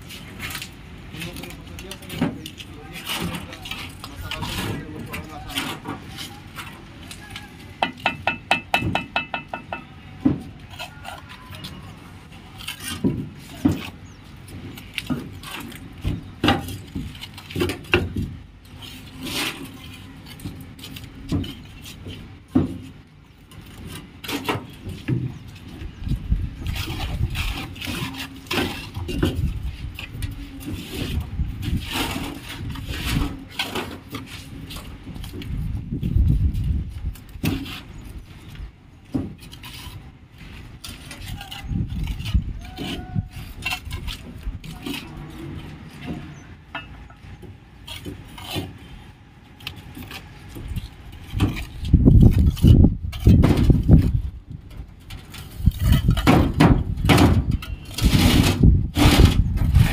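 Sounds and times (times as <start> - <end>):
knocks and clinks: 7.8 - 9.9.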